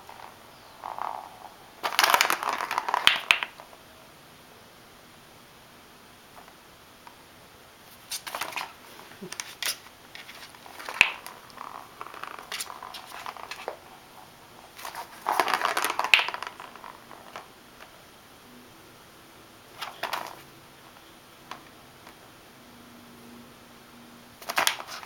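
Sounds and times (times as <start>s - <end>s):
plastic balls rattling in track: 0.0s - 3.8s, 8.2s - 17.9s, 19.7s - 20.4s, 24.4s - 25.0s.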